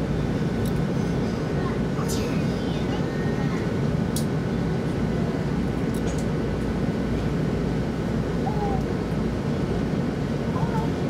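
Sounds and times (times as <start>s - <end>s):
train air conditioning hum: 0.0s - 11.0s.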